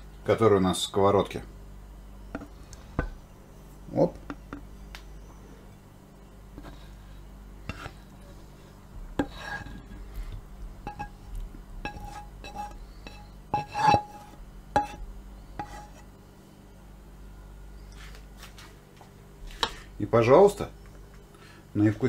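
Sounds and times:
spatula scraping and knocking pan: 7.6 - 8.0, 9.0 - 10.2, 10.8 - 16.1.

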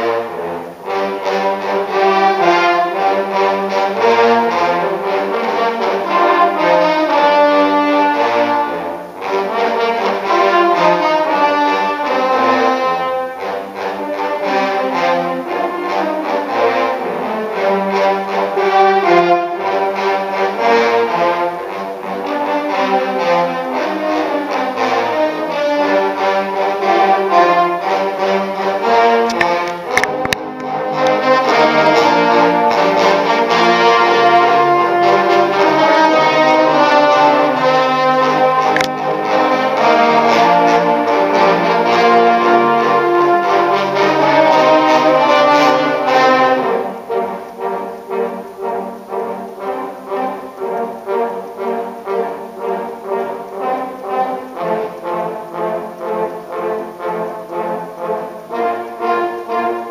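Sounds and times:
trombone ensemble playing chords: 0.0 - 59.9
sharp clicks: 29.3 - 31.2, 38.7 - 39.0.

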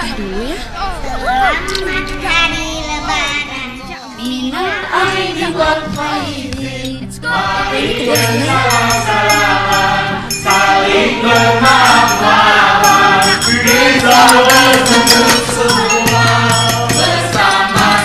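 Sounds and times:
choir singing over instrumental backing: 4.3 - 18.0.

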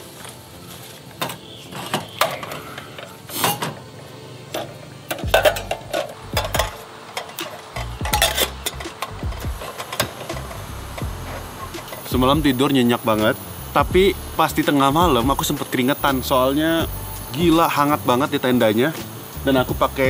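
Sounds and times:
kettle set on burner: 1.2 - 3.9, 4.5 - 12.1
camping stove metal clicks: 4.5 - 12.1.

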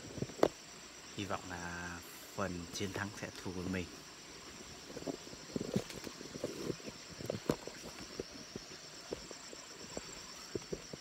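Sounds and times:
insects chorus: 0.0 - 11.0.

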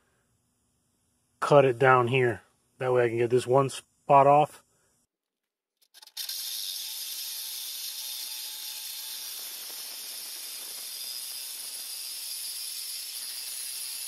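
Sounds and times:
reciprocating saw cutting metal: 5.8 - 14.0.

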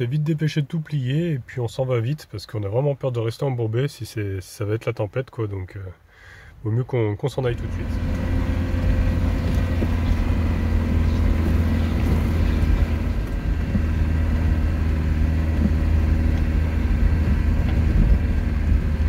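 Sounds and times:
van engine running low hum: 7.5 - 19.0.

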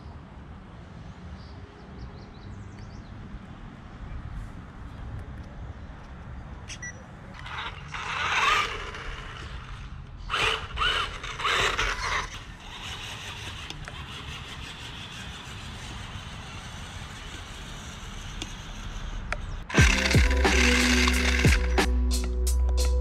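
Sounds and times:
electric motor whining: 7.4 - 21.9.

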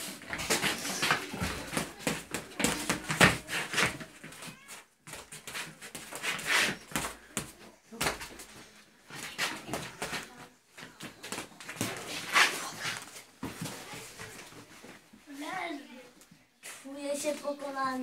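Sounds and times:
boxing gloves slapping: 0.2 - 4.0.

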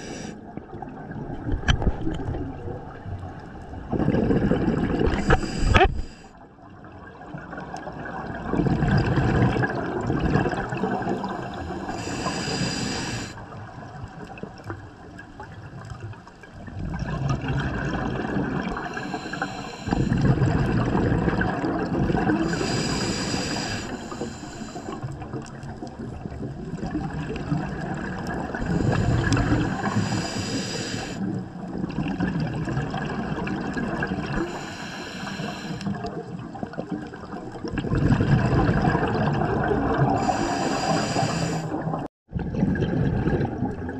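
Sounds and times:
regulator hiss on inhale: 0.0 - 0.4, 5.1 - 6.4, 11.2 - 13.4, 18.8 - 20.3, 22.5 - 25.1, 28.7 - 31.3, 34.4 - 36.0, 40.2 - 41.8
exhaust bubbles gushing: 3.8 - 5.4, 7.4 - 11.7, 16.7 - 19.1, 19.9 - 22.8, 35.9 - 40.5, 41.6 - 43.9.

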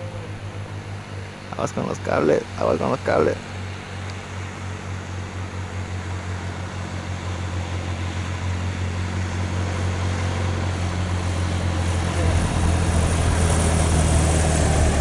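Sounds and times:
light plane engine droning: 0.0 - 15.0.

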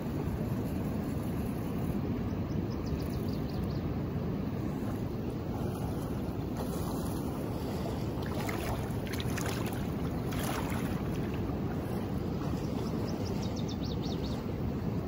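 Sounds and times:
river water rushing: 4.8 - 13.1
faint light splashes: 8.2 - 11.5.

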